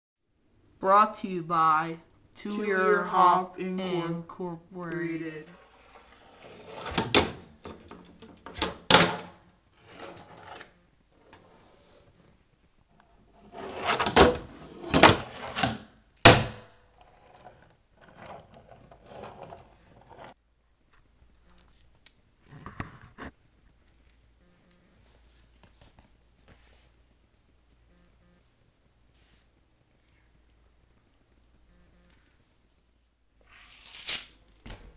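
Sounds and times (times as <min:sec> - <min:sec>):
fingerboard scraping and rolling: 0:05.5 - 0:08.6, 0:09.8 - 0:12.1, 0:13.1 - 0:15.8, 0:17.0 - 0:20.4.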